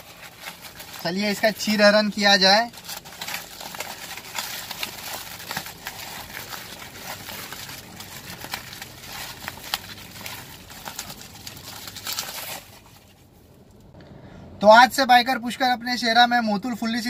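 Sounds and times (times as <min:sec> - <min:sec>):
bubble wrap crinkling and crackling: 0:00.0 - 0:13.6.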